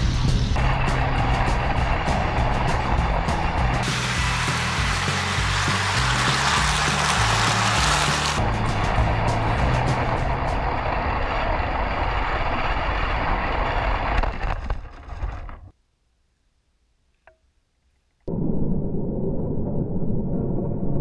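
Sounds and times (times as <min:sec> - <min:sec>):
toy train rumbling on track: 0:00.6 - 0:11.6.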